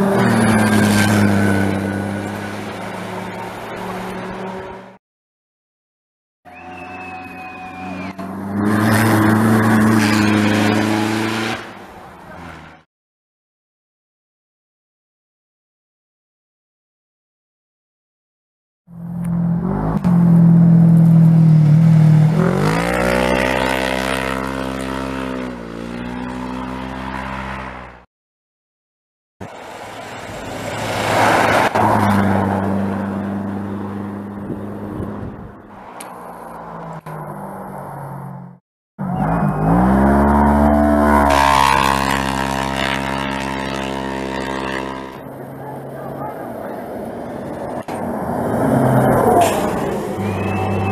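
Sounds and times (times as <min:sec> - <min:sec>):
buggy engine revving: 0:07.6 - 0:12.7, 0:19.1 - 0:27.8, 0:38.2 - 0:45.4
car engine revving: 0:39.0 - 0:45.3.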